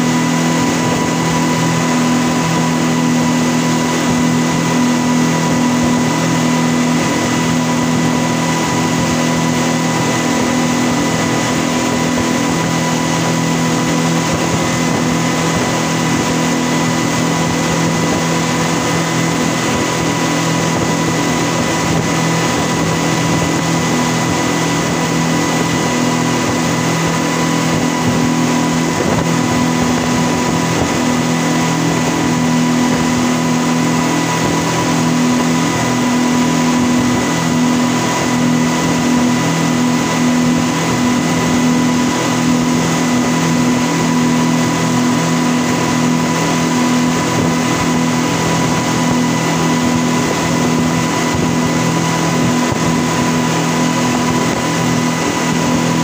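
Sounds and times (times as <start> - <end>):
outboard engines droning: 0.0 - 56.0
wake rushing: 0.0 - 56.0
wind: 0.0 - 56.0.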